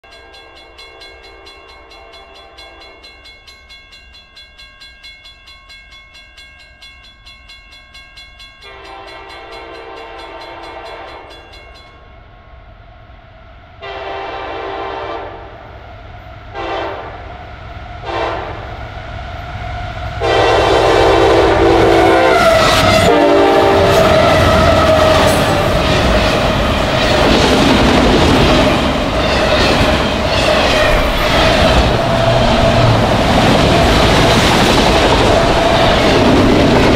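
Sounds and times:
locomotive air horn blasts: 8.7s - 11.3s, 13.8s - 15.6s, 16.6s - 17.2s, 18.0s - 18.7s, 20.2s - 25.4s
train wheels rumbling on rails: 15.5s - 36.9s.

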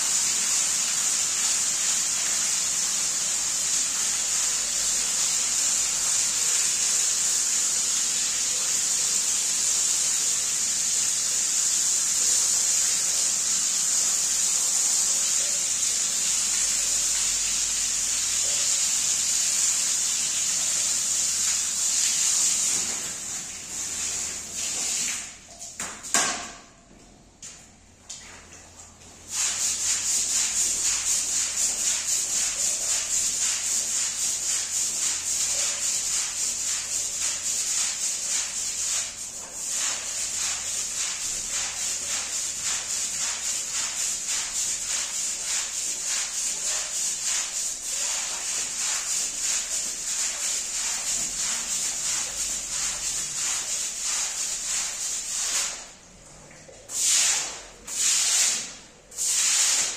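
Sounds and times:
brush scrubbing a rug: 29.3s - 56.0s, 56.9s - 59.9s.

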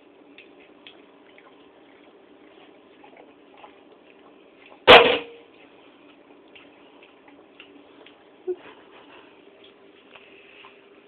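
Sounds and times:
sharp bang: 4.9s - 5.4s.

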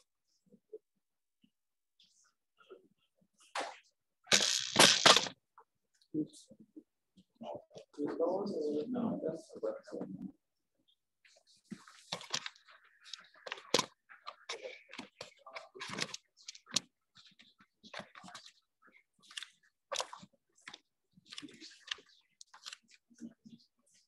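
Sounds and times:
rustling and clicking: 3.4s - 5.3s, 11.3s - 24.0s.

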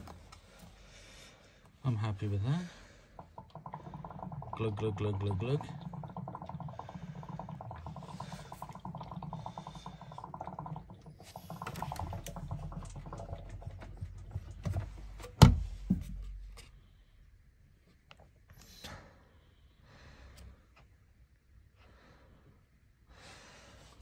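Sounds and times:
water glugging from drain pipe: 2.1s - 16.9s.

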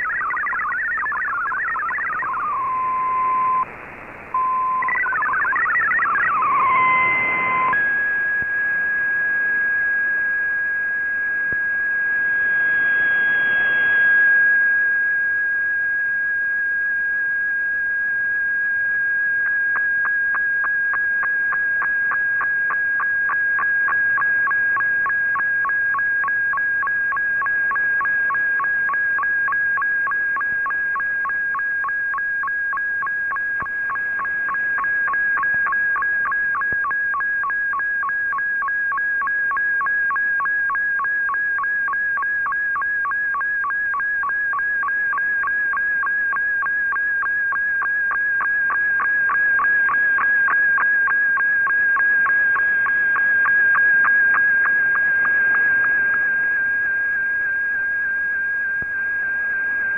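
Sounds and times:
shortwave radio whistling tone: 0.0s - 59.9s
band noise hiss: 2.4s - 4.8s.

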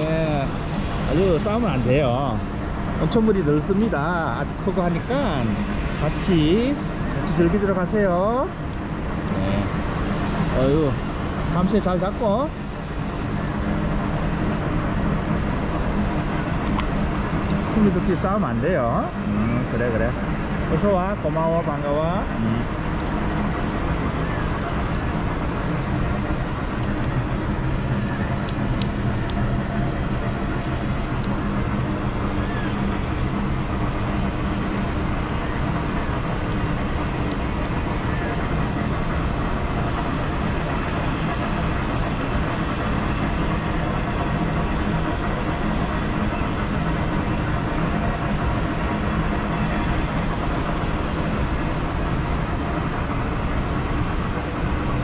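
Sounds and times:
flowing water rushing: 0.0s - 55.0s.

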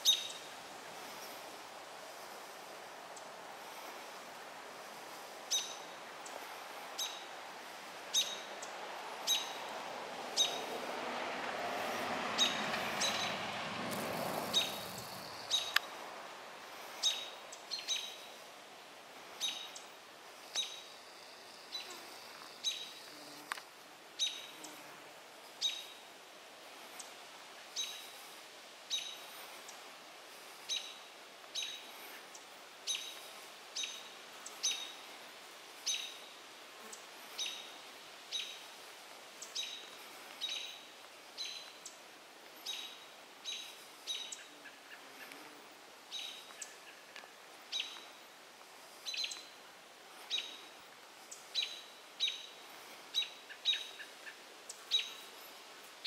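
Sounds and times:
robin alarm calls: 8.1s - 8.5s, 9.2s - 9.6s, 53.1s - 55.2s.

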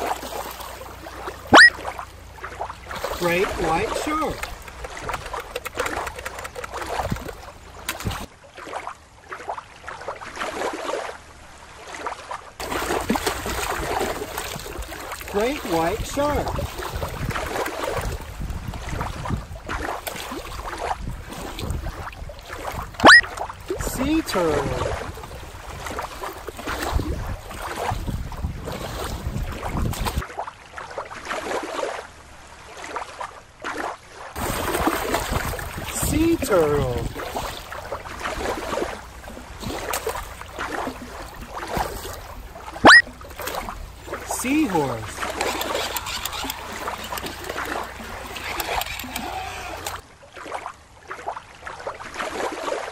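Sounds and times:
underwater bubbling and rushing water: 0.0s - 52.9s
water lapping on rocky shore: 0.0s - 52.9s
wind rumble on microphone: 3.0s - 8.3s, 13.1s - 30.2s, 34.4s - 42.6s.

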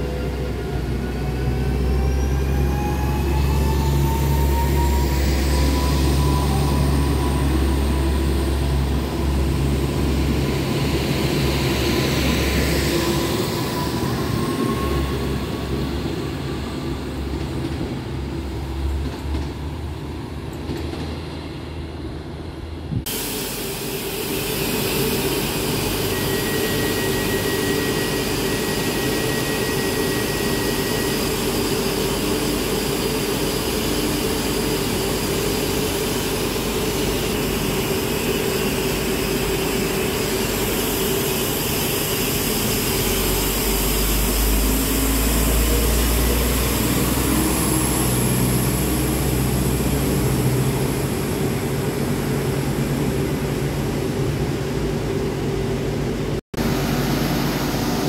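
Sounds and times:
diesel railcar running: 0.0s - 58.0s
train rumbling and whining: 0.0s - 58.0s
steady high tone: 2.0s - 16.9s.

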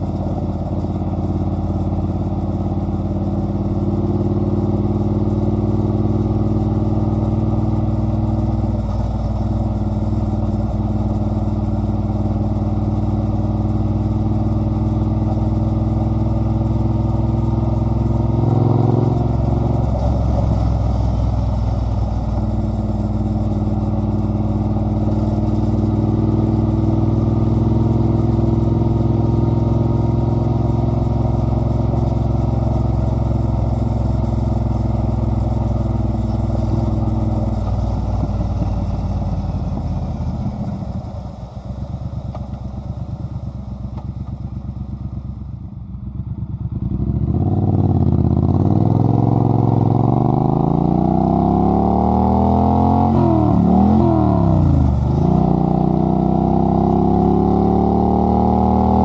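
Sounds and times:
motorcycle exhaust: 0.0s - 59.0s.

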